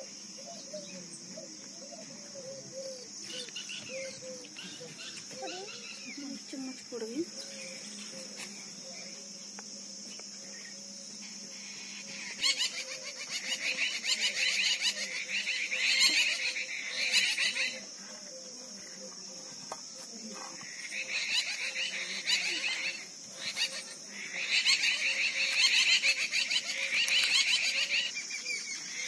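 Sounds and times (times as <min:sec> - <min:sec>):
fast rattling insect calls: 0:00.0 - 0:29.0
high insect drone: 0:00.0 - 0:29.0.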